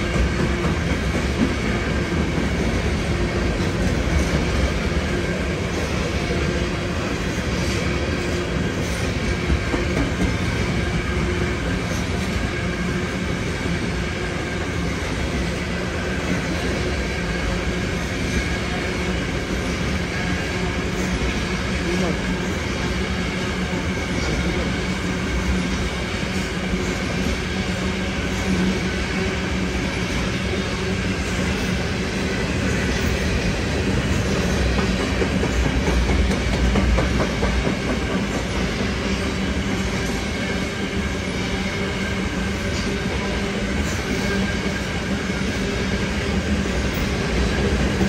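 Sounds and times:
train wheels rumbling on rail: 0:00.0 - 0:48.0
wheels clicking over rail joints: 0:33.9 - 0:39.0.

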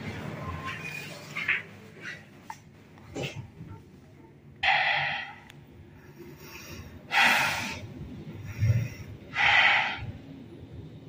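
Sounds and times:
person breathing heavily: 0:05.9 - 0:10.0.

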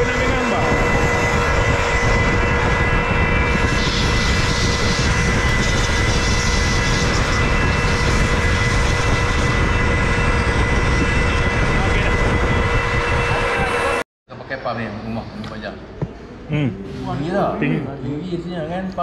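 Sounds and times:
pump motor drone with whine: 0:00.0 - 0:14.0.

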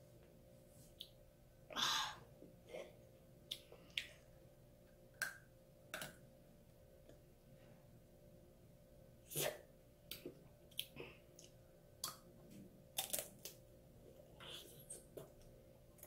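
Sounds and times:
hard candy shell crunching: 0:13.0 - 0:13.6.

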